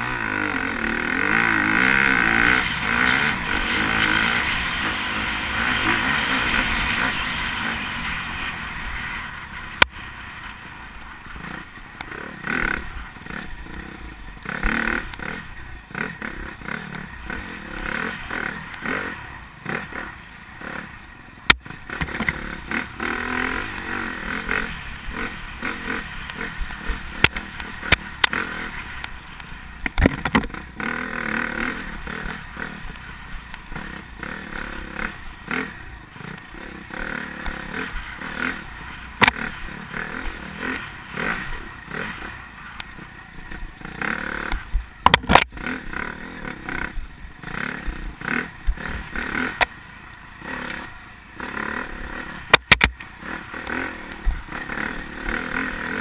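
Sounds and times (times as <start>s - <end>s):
dirt bike engine revving: 0.0s - 56.0s
sharp knocks and clatter: 45.0s - 45.5s, 52.5s - 53.0s.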